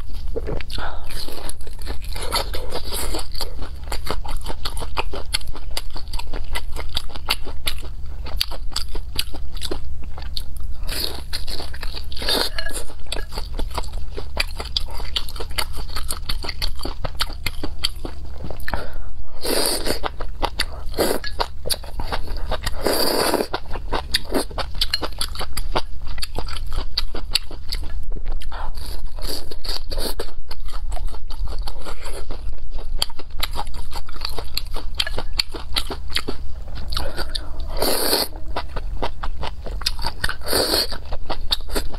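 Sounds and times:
wet chewing: 0:19.7 - 0:41.9.

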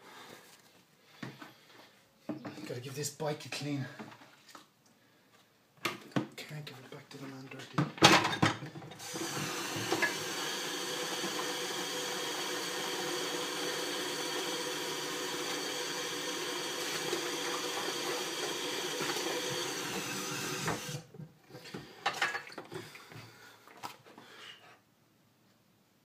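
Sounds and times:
tap water running into bucket: 0:08.9 - 0:21.1.

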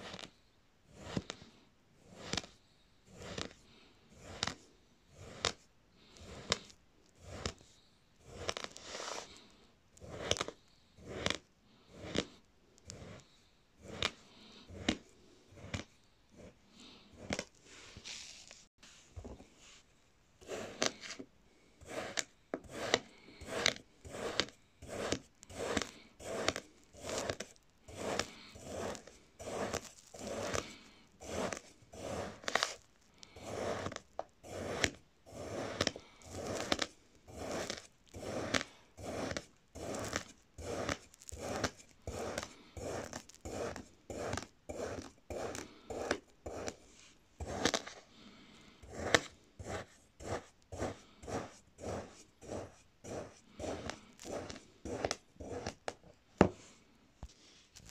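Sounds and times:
knife scraping through sand: 0:03.1 - 0:05.6, 0:08.2 - 0:09.4, 0:20.4 - 0:21.2, 0:21.8 - 0:48.0, 0:48.8 - 0:55.8.

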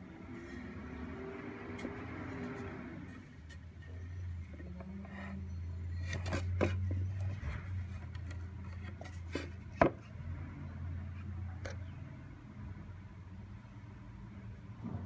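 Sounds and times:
wooden plank knocking and rubbing: 0:06.1 - 0:10.0.

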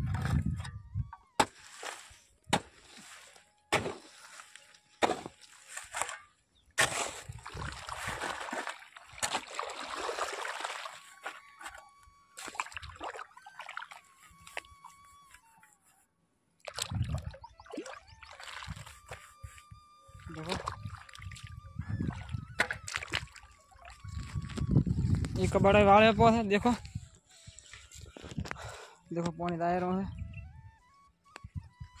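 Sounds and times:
water and mud sloshing: 0:01.4 - 0:14.8, 0:16.6 - 0:26.7
spade knocking into wet mud: 0:03.7 - 0:04.1, 0:05.0 - 0:05.3.

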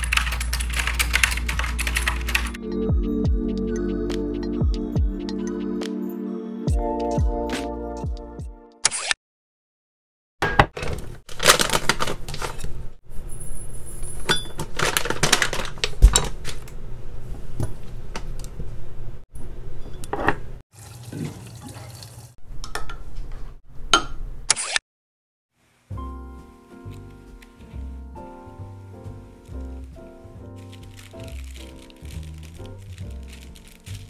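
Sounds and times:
seed bag rustling: 0:11.3 - 0:12.5, 0:28.8 - 0:34.0
water pouring: 0:20.7 - 0:22.4, 0:30.6 - 0:34.0.

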